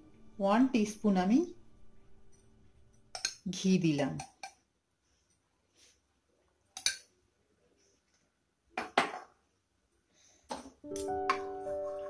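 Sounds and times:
steel spoon clinking against pot: 0:03.1 - 0:03.4.

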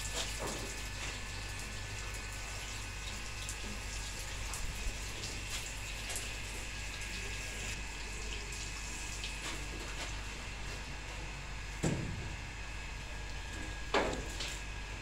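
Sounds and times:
hose spraying water on brick wall: 0:00.0 - 0:15.0.

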